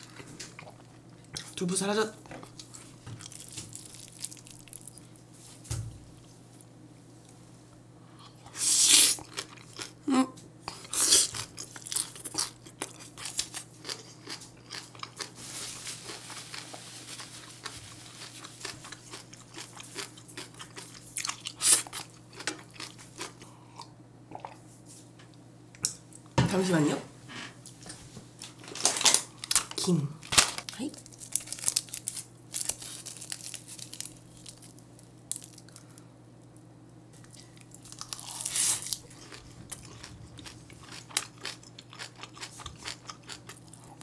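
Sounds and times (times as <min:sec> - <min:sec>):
person chewing crunchy food: 0:00.0 - 0:01.6, 0:02.4 - 0:05.2, 0:08.1 - 0:10.0, 0:10.6 - 0:24.7, 0:31.0 - 0:36.0, 0:37.2 - 0:44.0.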